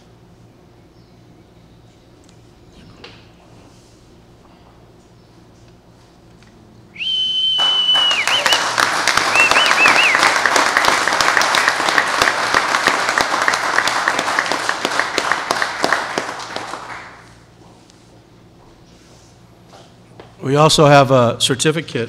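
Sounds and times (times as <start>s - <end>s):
cheering whistles: 7.0s - 10.5s
audience applauding: 7.1s - 17.4s.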